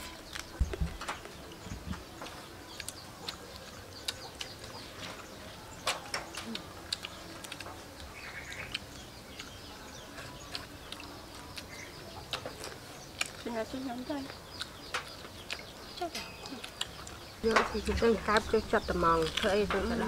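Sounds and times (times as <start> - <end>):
bird chirps: 0.0 - 20.0
crunching and chewing fried food: 0.0 - 20.0.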